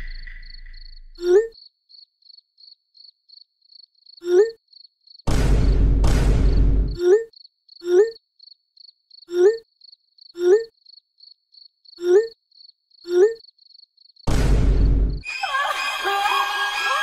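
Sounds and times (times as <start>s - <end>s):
crickets chirping: 0.0s - 5.2s, 6.9s - 14.3s.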